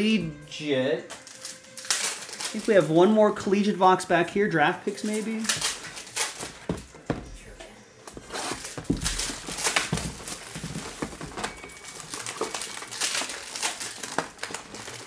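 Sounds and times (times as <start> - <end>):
plastic wrap and foil crinkling: 1.2 - 3.5, 4.9 - 7.1, 8.1 - 15.0.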